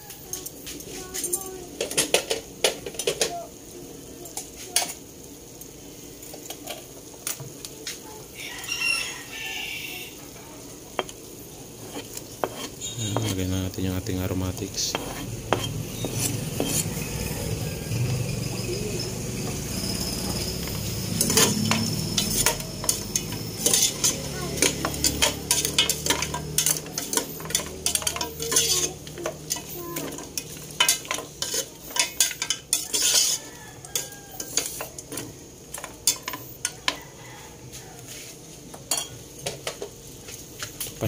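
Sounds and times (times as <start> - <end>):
light sizzle: 0.0 - 41.0
metal spatula clinking on pot: 20.3 - 34.9.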